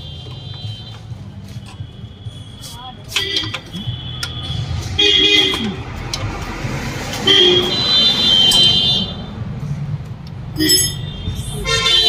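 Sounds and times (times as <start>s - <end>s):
vehicle horn honking: 1.7s - 5.8s, 7.2s - 9.2s, 10.6s - 12.0s.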